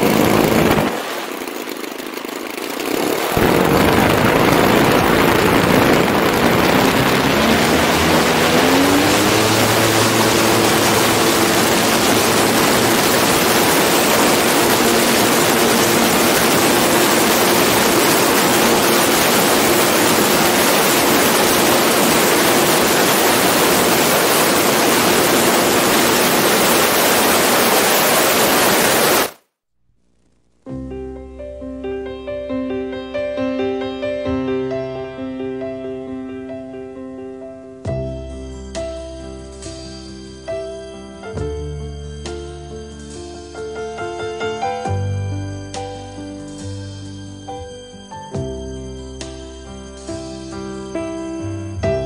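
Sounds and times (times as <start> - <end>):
wind on microphone: 0.0 - 1.0, 2.9 - 29.3
two-stroke engines revving: 0.0 - 29.4.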